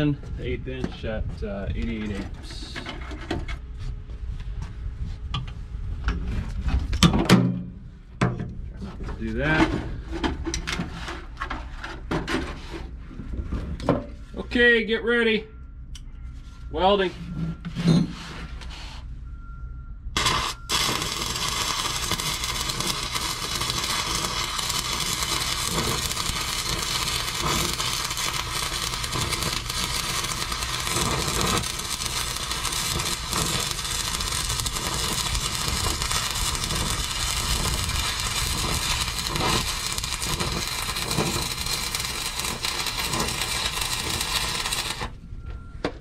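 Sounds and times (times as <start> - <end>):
welding arc crackling: 20.2 - 45.2.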